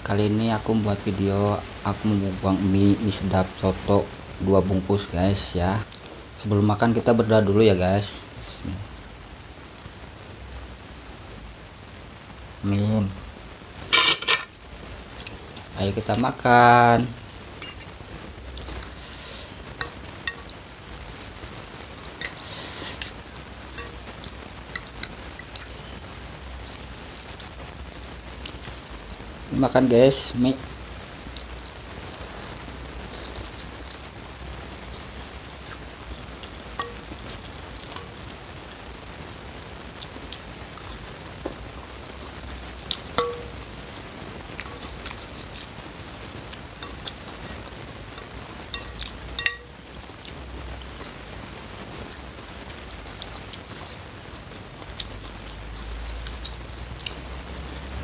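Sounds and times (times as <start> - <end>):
cutlery clinking against bowl: 13.9 - 14.6, 17.6 - 18.0, 43.2 - 43.5, 48.7 - 49.7.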